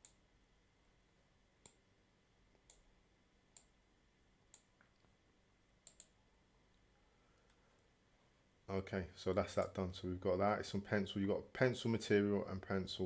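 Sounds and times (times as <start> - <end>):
computer mouse clicking: 5.8 - 6.2.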